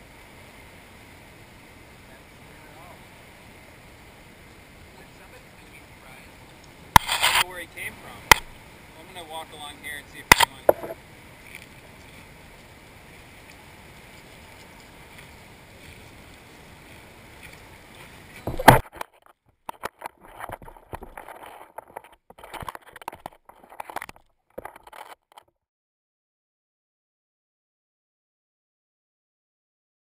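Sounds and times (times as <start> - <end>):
small waves: 0.0 - 25.2
wind: 0.0 - 25.5
short irregular sounds: 6.9 - 7.7.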